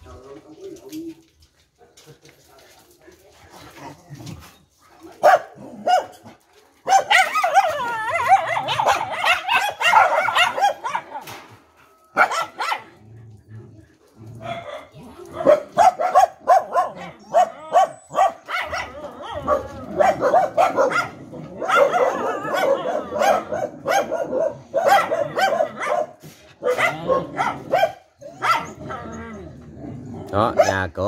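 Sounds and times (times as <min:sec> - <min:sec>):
dogs barking: 0:05.0 - 0:11.4, 0:12.1 - 0:13.1, 0:14.0 - 0:31.0.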